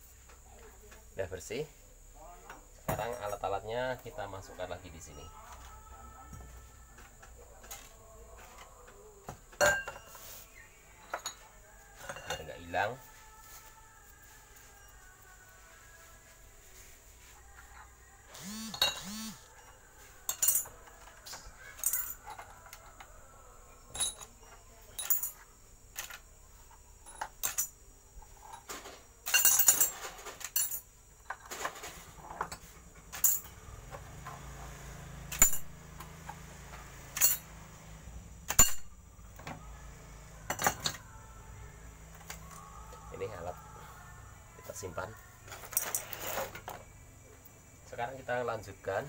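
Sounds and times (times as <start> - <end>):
metal tools clinking: 9.6 - 10.2, 11.0 - 12.7, 18.6 - 23.0, 23.9 - 26.3, 27.0 - 33.7, 37.1 - 37.6, 45.5 - 46.7.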